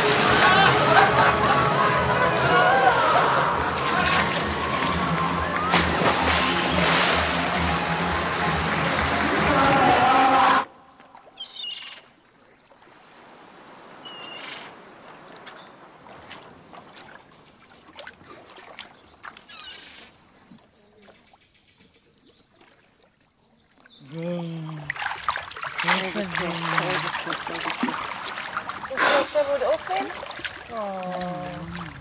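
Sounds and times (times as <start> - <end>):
water dripping: 3.8 - 10.0, 23.7 - 32.0
hand splashing in pool water: 3.8 - 10.6, 24.6 - 32.0
high bird calls: 10.7 - 12.1, 14.0 - 14.9, 19.2 - 20.2.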